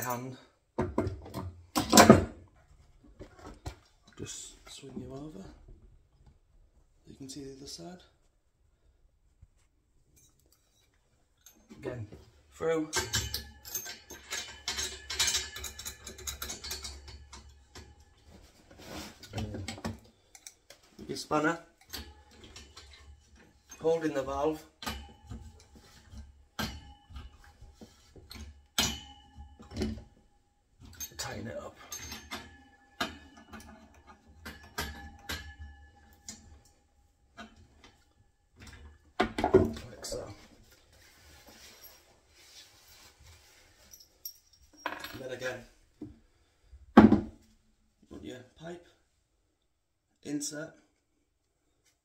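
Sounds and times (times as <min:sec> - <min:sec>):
small metallic clicks and rattles: 0:12.9 - 0:18.2, 0:19.3 - 0:20.9, 0:21.8 - 0:24.2.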